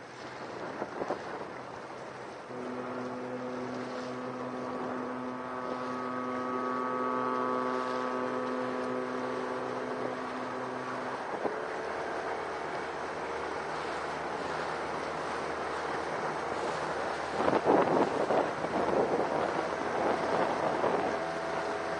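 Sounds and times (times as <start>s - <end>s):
water noise: 0.0s - 21.9s
wind: 0.0s - 21.9s
faint rising tone: 2.5s - 16.6s
vessel low drone: 2.5s - 21.9s.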